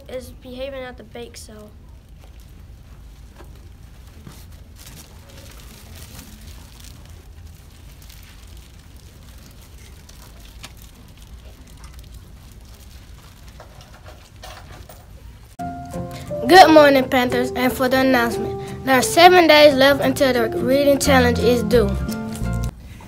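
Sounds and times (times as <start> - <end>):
faint room ambience: 0.0 - 23.0
crackles and rustles: 1.2 - 15.6.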